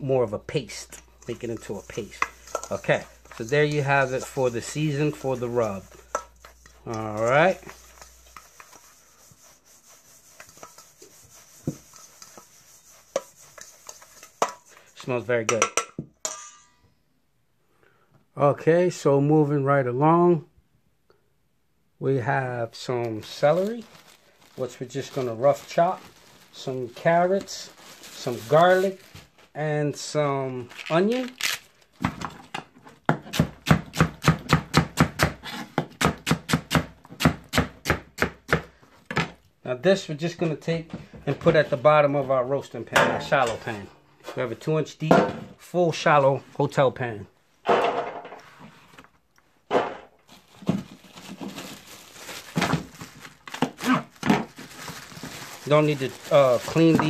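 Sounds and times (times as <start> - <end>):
fork scraping spice rub in bowl: 1.2 - 15.0.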